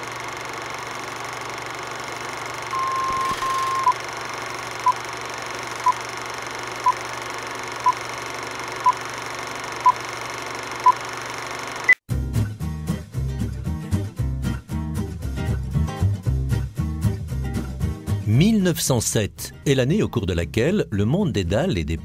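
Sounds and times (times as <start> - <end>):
film projector running: 0.0 - 12.0
countdown beeps: 2.8 - 3.9.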